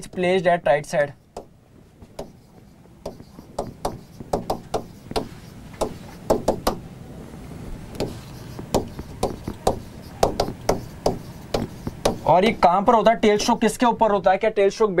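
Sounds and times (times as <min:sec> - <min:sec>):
pen tapping on whiteboard: 0:01.3 - 0:01.5, 0:02.1 - 0:06.8, 0:08.0 - 0:12.6.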